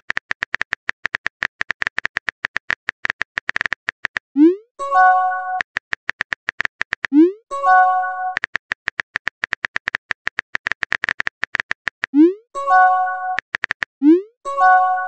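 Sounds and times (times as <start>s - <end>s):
simulated keyboard typing clicks: 0.0s - 15.0s.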